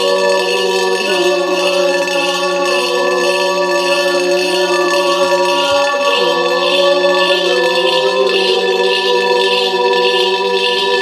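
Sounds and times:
coin ringing in ceramic bowl: 0:00.0 - 0:11.0
voices yodelling in chords: 0:00.0 - 0:11.0.

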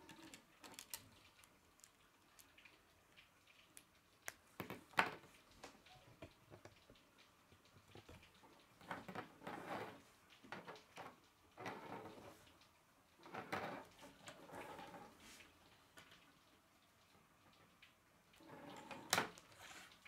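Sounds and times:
plastic pieces clicking and rattling: 0:00.0 - 0:02.8.

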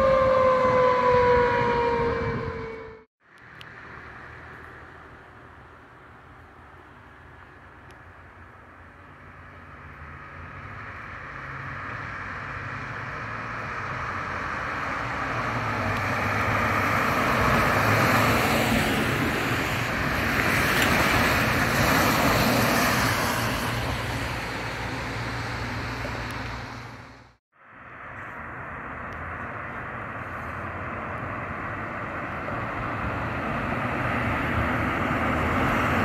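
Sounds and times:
diesel engine drone: 0:00.0 - 0:36.0.

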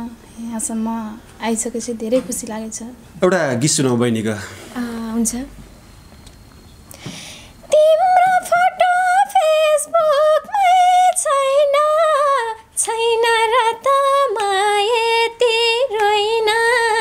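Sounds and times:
girl singing unaccompanied: 0:07.6 - 0:17.0.

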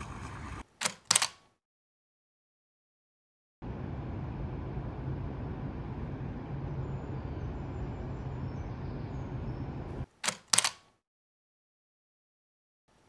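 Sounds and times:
camera shutter clicks: 0:00.8 - 0:01.4, 0:10.2 - 0:10.9
city ambience rumble: 0:03.6 - 0:10.1.

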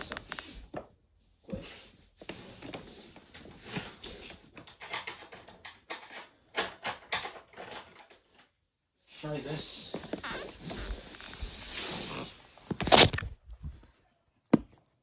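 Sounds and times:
objects being handled: 0:12.6 - 0:15.0.

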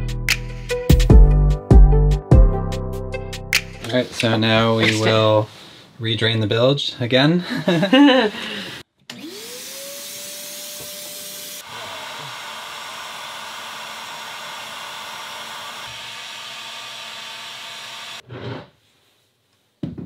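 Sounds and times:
heat gun motor whine and airflow: 0:09.1 - 0:18.2.

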